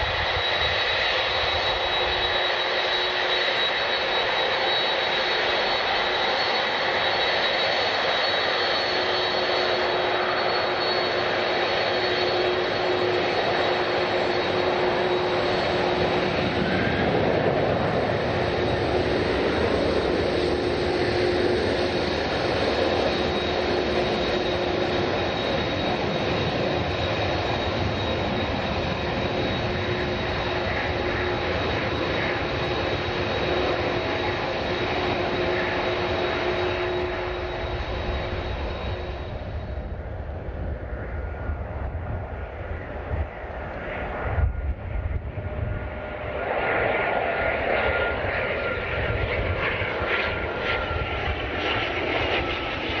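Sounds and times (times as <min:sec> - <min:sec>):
jet engines running: 0:00.0 - 0:53.0.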